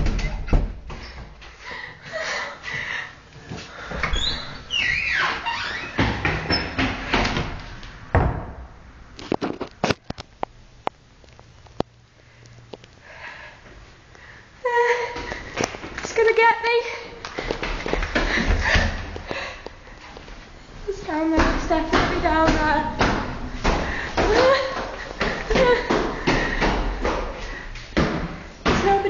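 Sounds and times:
door scuffs and knocks: 0.0s - 1.4s, 3.9s - 8.6s
door squeal: 4.0s - 6.8s.

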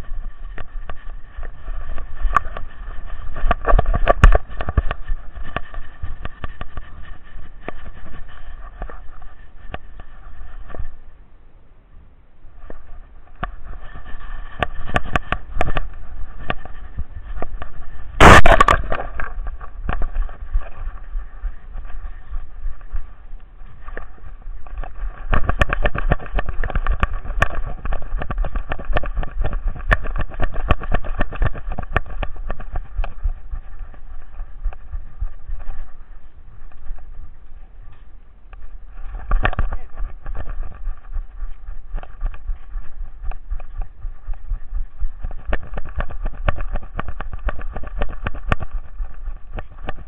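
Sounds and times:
wind rumble: 0.0s - 50.0s
handling noise: 12.6s - 50.0s.

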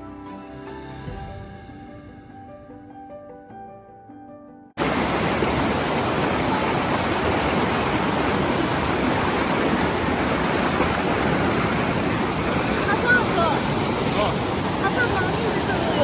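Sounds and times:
whitewater river rushing: 4.8s - 16.0s.

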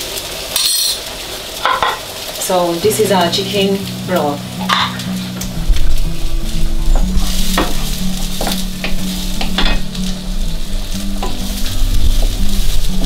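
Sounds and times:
onions sizzling in a frying pan: 0.0s - 13.0s
wooden spoon scraping and stirring: 6.5s - 10.2s.

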